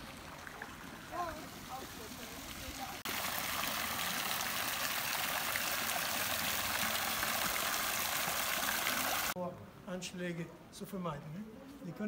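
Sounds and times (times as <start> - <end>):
fountain water splashing: 0.0 - 9.4.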